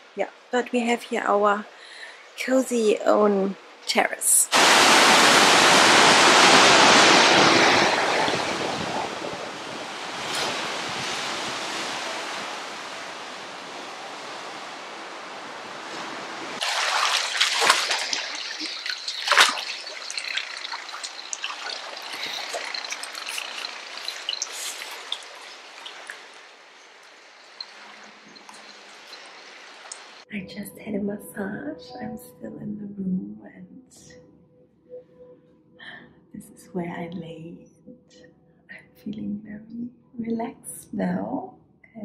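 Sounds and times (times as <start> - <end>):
waves washing over rocks: 4.5 - 30.2
sharp water splashes: 4.5 - 30.3
water trickling in a pool: 16.6 - 30.3.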